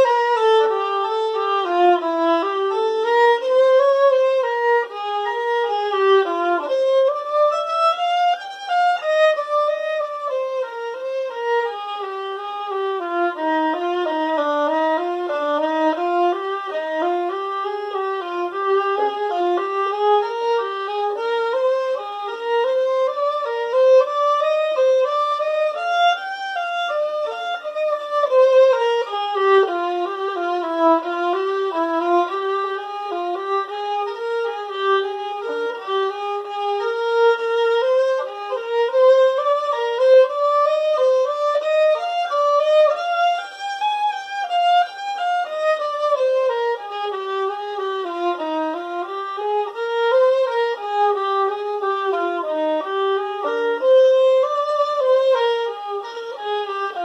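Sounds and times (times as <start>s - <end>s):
solo violin melody: 0.0s - 57.0s.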